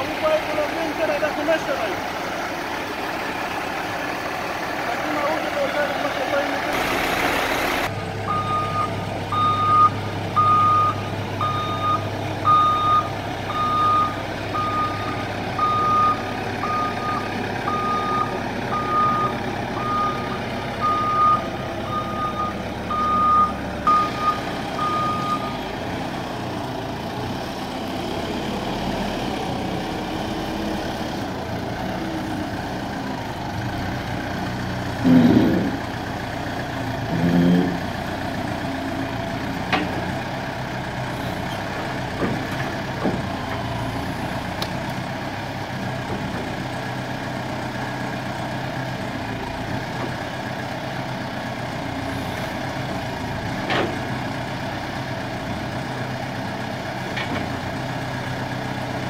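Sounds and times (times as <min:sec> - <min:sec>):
diesel engine running: 0:00.0 - 0:59.0
reversing alarm beeping: 0:06.8 - 0:25.6.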